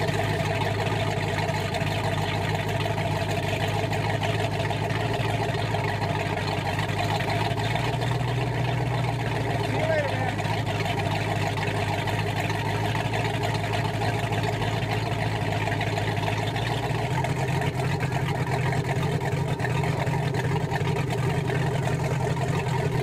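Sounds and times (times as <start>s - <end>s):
boat engine idling: 0.0s - 23.0s
water spilling from exhaust: 0.0s - 23.0s.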